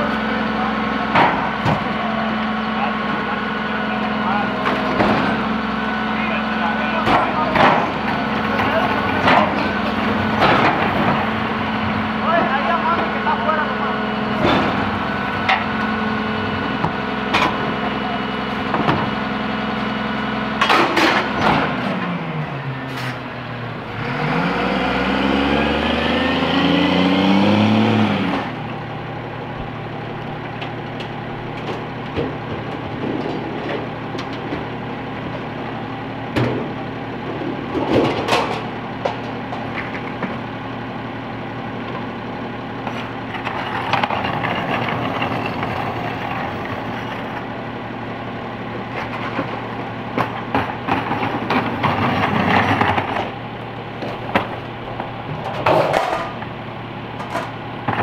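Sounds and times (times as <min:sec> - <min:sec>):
diesel truck engine idling: 0:00.0 - 0:58.0
engine revving: 0:23.8 - 0:28.9.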